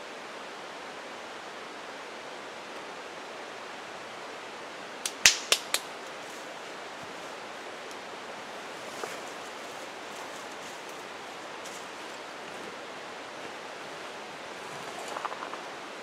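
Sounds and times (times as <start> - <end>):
creek rushing: 0.0 - 16.0
sharp clicks: 5.0 - 5.9.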